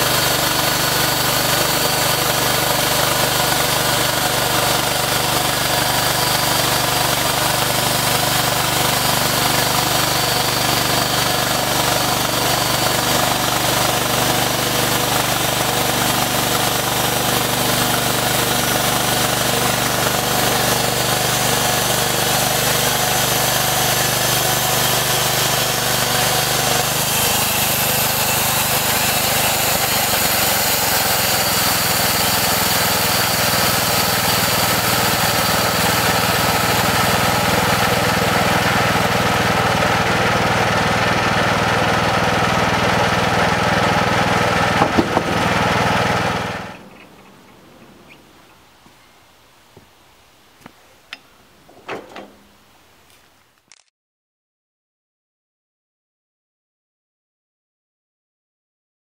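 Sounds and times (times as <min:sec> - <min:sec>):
band blade sawing through log: 0:00.0 - 0:46.8
small gasoline engine running: 0:00.0 - 0:47.0.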